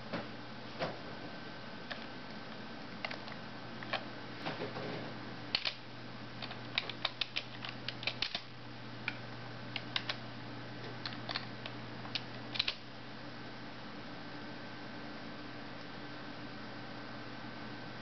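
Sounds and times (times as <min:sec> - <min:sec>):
steady low hum: 0:00.0 - 0:18.0
keyboard keys clicking: 0:06.4 - 0:08.4, 0:09.8 - 0:10.2, 0:12.1 - 0:12.8.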